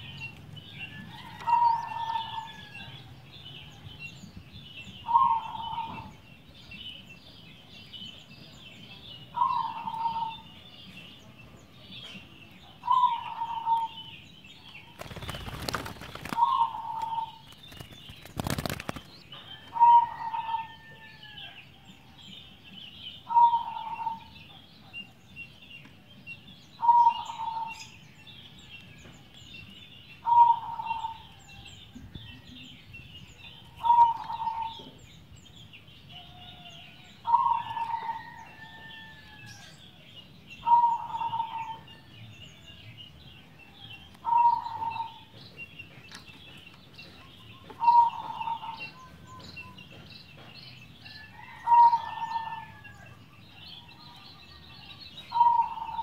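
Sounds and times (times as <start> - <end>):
dove cooing: 15.2 - 17.4, 19.7 - 20.8, 30.3 - 31.2, 33.8 - 34.8, 44.3 - 45.2, 47.8 - 48.8, 55.3 - 56.0.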